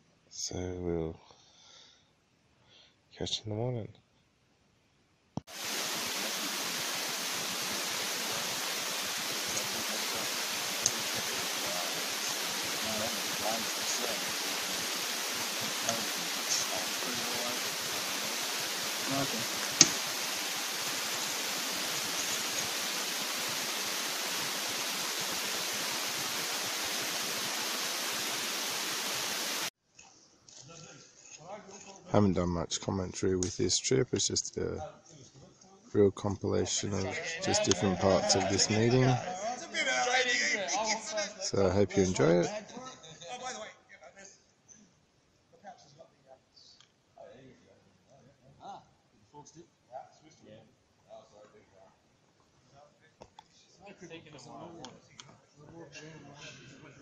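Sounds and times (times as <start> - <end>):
steady hiss: 5.4 - 29.7, 36.0 - 39.3, 41.0 - 42.5.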